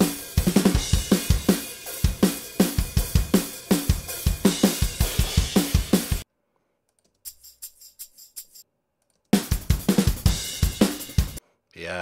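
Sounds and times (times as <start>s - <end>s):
pop-punk drums: 0.0s - 6.2s, 9.4s - 11.4s.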